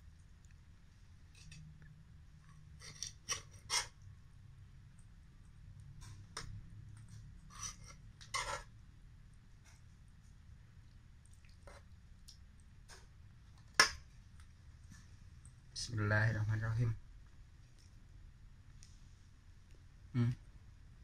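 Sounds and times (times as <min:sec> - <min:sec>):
metal spatula scraping frying pan: 0:02.8 - 0:04.0, 0:07.5 - 0:08.7.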